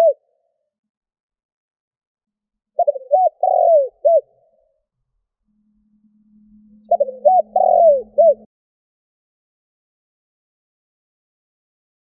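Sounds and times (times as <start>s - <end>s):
dove cooing: 0.0s - 0.2s, 2.8s - 4.4s, 6.9s - 8.5s
faint low hum: 4.4s - 8.5s.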